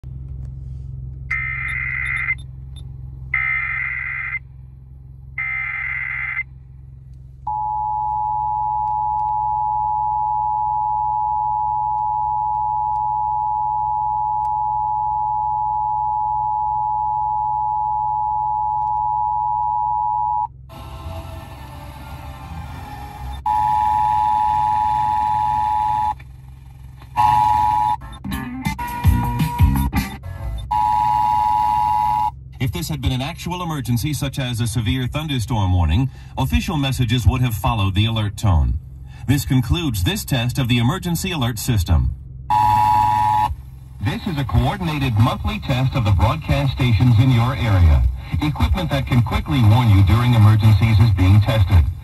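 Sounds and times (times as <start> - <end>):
data tone bursts: 1.3 - 2.4, 3.4 - 4.4, 42.5 - 43.5
two-tone attention signal: 30.6 - 32.3, 42.5 - 43.5
radio hiss: 44.0 - 52.0.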